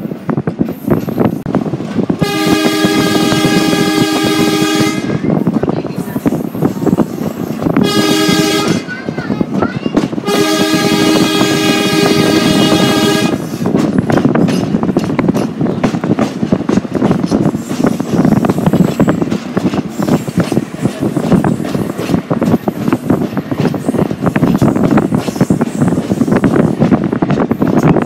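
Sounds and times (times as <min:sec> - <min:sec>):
train wheels clattering on rails: 0:00.0 - 0:28.0
train air horn blast: 0:02.2 - 0:05.2, 0:07.8 - 0:08.9, 0:10.2 - 0:13.6.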